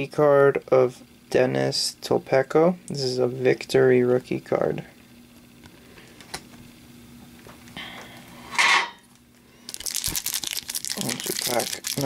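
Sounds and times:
foil wrapper crinkling: 0:09.6 - 0:12.0
trading cards handled: 0:09.7 - 0:12.0.

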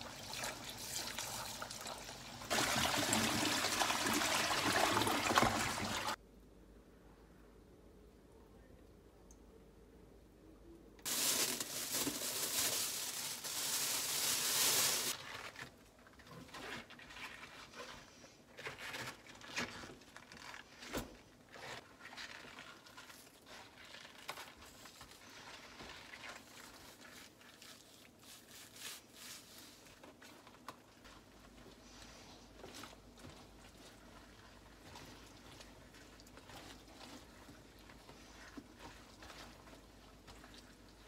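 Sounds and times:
plastic sheet crinkling: 0:11.0 - 0:15.8
soft rustles of cabbage handling: 0:11.0 - 0:41.0.

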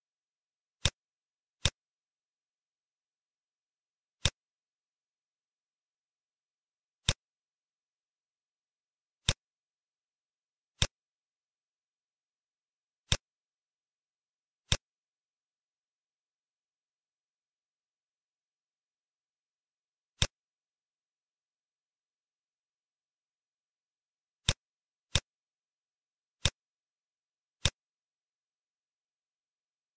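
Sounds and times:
computer mouse clicks: 0:00.8 - 0:01.0, 0:01.6 - 0:01.8, 0:04.2 - 0:04.4, 0:07.0 - 0:07.3, 0:10.8 - 0:11.0, 0:20.2 - 0:20.4, 0:26.4 - 0:26.6, 0:27.6 - 0:27.9.

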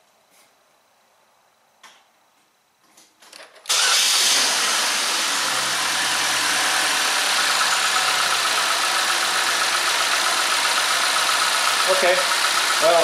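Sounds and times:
car engine idling: 0:03.7 - 0:13.0.

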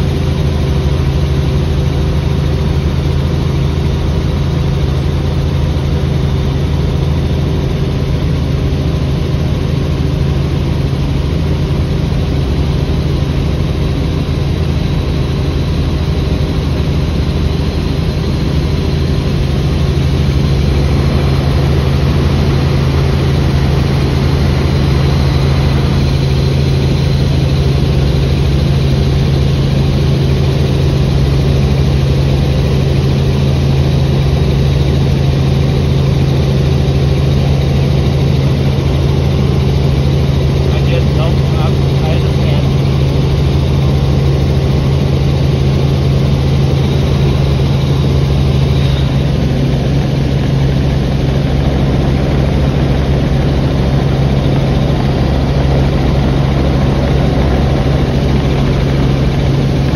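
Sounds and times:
helicopter engine and rotor drone: 0:00.0 - 0:59.9
faint high whine: 0:46.5 - 0:59.9.

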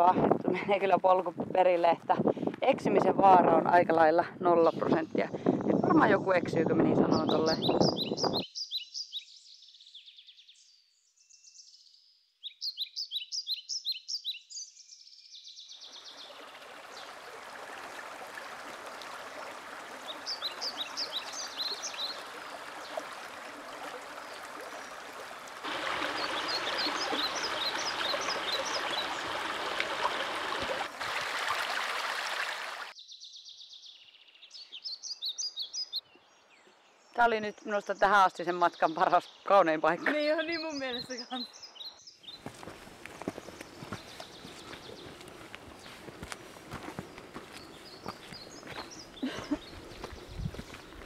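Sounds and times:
songbirds chirping: 0:00.0 - 0:30.9, 0:32.8 - 0:51.0
brook water rushing over stones: 0:15.9 - 0:33.0, 0:42.4 - 0:51.0.

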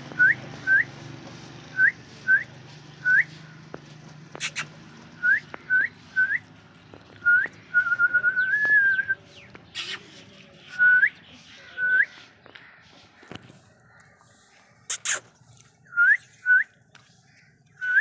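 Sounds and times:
person whistling: 0:01.8 - 0:03.3, 0:05.2 - 0:06.4, 0:15.9 - 0:16.7.

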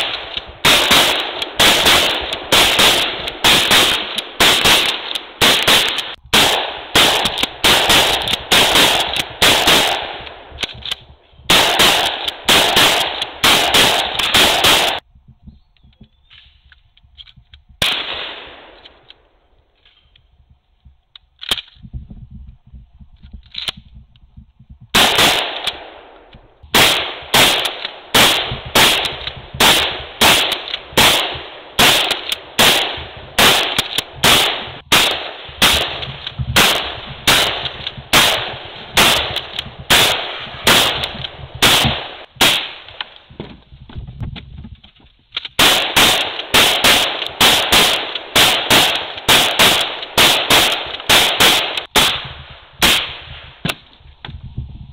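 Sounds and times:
shotgun shots: 0:00.0 - 0:15.0, 0:17.8 - 0:19.0, 0:24.9 - 0:43.3, 0:45.6 - 0:53.9
gun handling clicks: 0:01.2 - 0:06.2, 0:07.2 - 0:09.4, 0:10.2 - 0:11.2, 0:12.0 - 0:12.4, 0:15.7 - 0:18.1, 0:18.7 - 0:21.9, 0:23.2 - 0:24.3, 0:28.9 - 0:30.9, 0:32.0 - 0:32.5, 0:33.7 - 0:34.2, 0:39.0 - 0:39.7.

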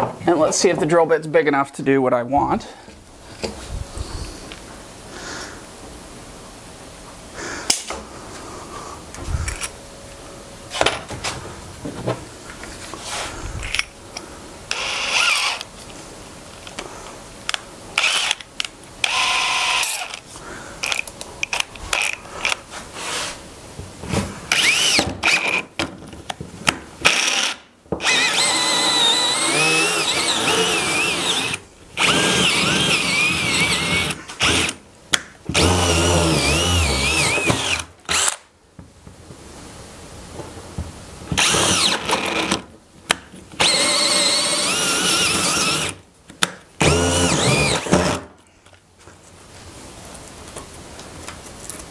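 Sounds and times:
power drill boring through wood: 0:14.7 - 0:15.7, 0:18.0 - 0:18.4, 0:19.0 - 0:20.2, 0:24.5 - 0:25.6, 0:27.0 - 0:34.8, 0:35.5 - 0:38.4, 0:41.4 - 0:42.6, 0:43.6 - 0:46.0, 0:46.8 - 0:48.2.

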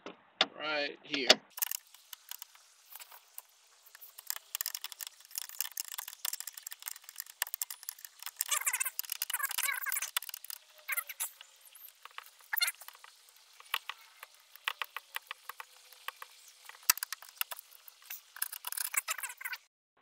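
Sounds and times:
screwdriver scraping screw head: 0:03.9 - 0:11.4.

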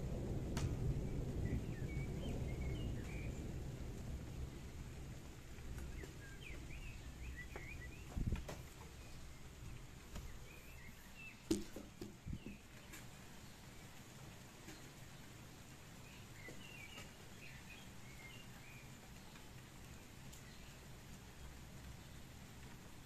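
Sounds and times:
thunder rumble: 0:00.0 - 0:11.3
small birds chirping: 0:01.0 - 0:23.0
camera knock: 0:11.5 - 0:12.5.

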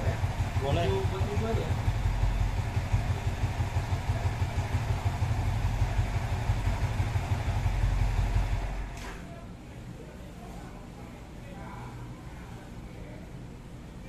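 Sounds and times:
motorcycle engine idling: 0:00.0 - 0:09.0.

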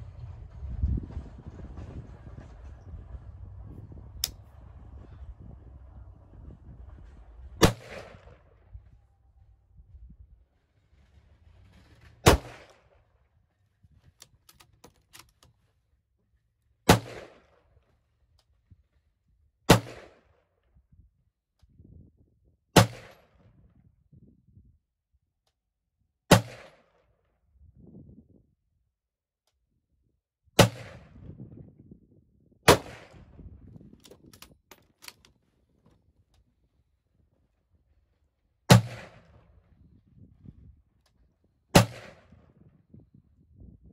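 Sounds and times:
rifle shots: 0:07.6 - 0:08.4, 0:12.2 - 0:12.9, 0:16.9 - 0:17.6, 0:19.7 - 0:20.2, 0:22.8 - 0:23.2, 0:26.3 - 0:26.8, 0:30.6 - 0:31.1, 0:32.7 - 0:33.2, 0:38.7 - 0:39.4, 0:41.7 - 0:42.4
rifle bolt clicks and clacks: 0:14.1 - 0:15.6, 0:34.0 - 0:35.4.

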